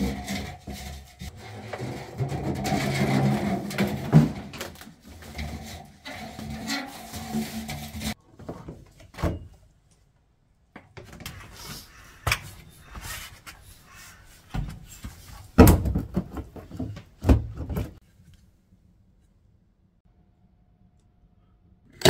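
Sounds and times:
plastic cover knocking and scraping: 0.0s - 8.8s.

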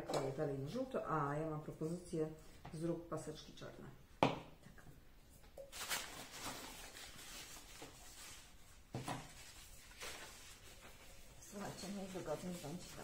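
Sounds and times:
tissue paper rustling: 5.7s - 13.0s.

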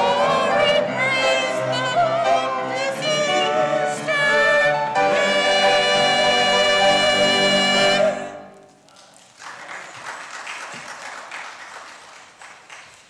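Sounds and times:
church choir singing chord: 0.0s - 8.6s
congregation applauding: 8.8s - 13.0s.

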